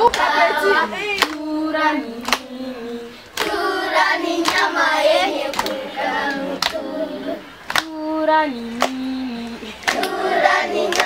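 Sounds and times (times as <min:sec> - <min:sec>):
hand claps keeping beat: 0:00.0 - 0:00.3, 0:01.2 - 0:01.5, 0:02.2 - 0:02.6, 0:03.3 - 0:04.8, 0:05.4 - 0:06.9, 0:07.6 - 0:08.1, 0:08.8 - 0:11.0
children singing together: 0:00.0 - 0:11.0.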